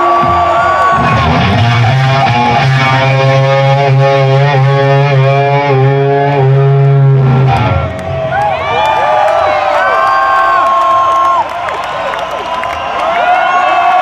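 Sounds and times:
electric guitar sustained note: 1.1 - 8.4.

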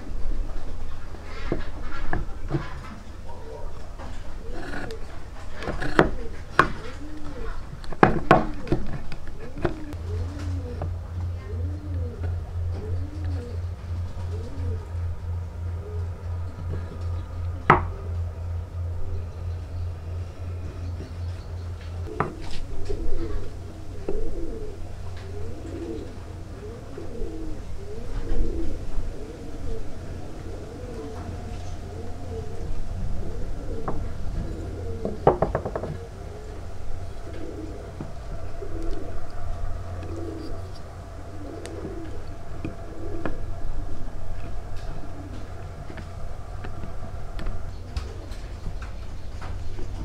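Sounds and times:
dove cooing: 0.0 - 50.0
steady low hum: 0.0 - 50.0
wooden knock: 35.2 - 36.0.

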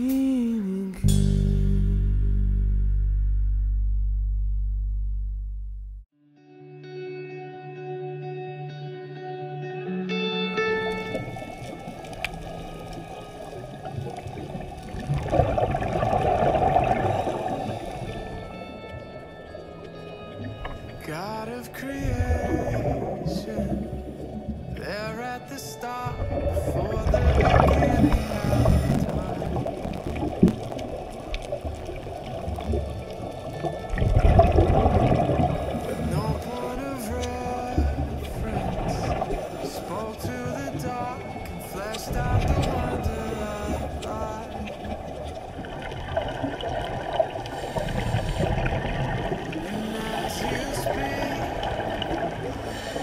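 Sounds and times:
muffled underwater rushing and bubbling: 11.0 - 53.0.

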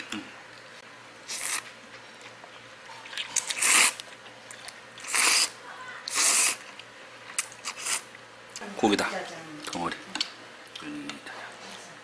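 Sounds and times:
noodles being slurped: 1.3 - 1.7, 3.1 - 4.0, 4.6 - 6.7, 7.4 - 8.1.

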